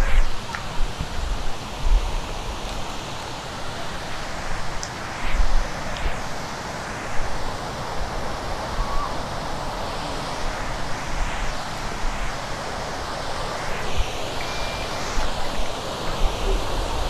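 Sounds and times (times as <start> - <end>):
faint whistles: 8.8 - 9.2, 13.4 - 16.6.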